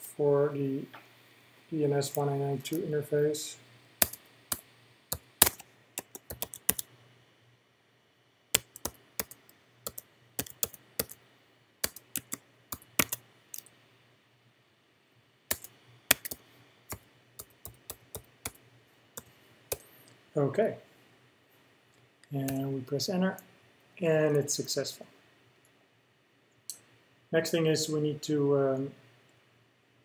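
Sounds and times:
computer keyboard typing: 0:04.0 - 0:06.9, 0:08.6 - 0:11.2, 0:11.8 - 0:13.7, 0:15.5 - 0:18.6, 0:19.2 - 0:19.9.

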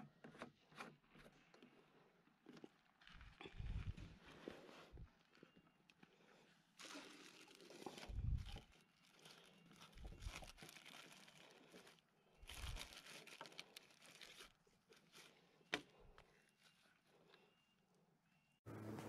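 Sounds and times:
plastic bag rustling: 0:02.8 - 0:05.5, 0:06.8 - 0:15.4.

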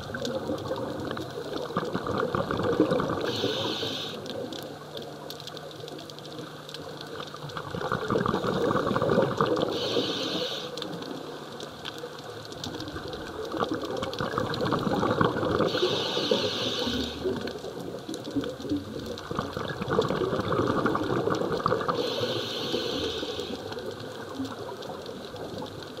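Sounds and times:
exhaled bubbles rumbling: 0:00.0 - 0:26.0
regulator inhalation hiss: 0:03.2 - 0:04.3, 0:09.6 - 0:11.0, 0:15.7 - 0:17.4, 0:21.9 - 0:23.7.

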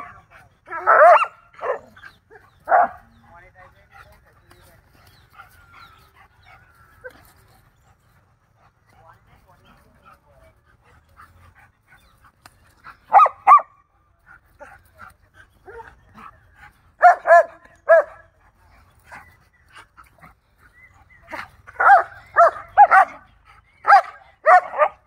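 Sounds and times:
dogs barking high-pitched: 0:00.0 - 0:03.1, 0:13.1 - 0:13.8, 0:17.0 - 0:18.2, 0:21.8 - 0:25.0.

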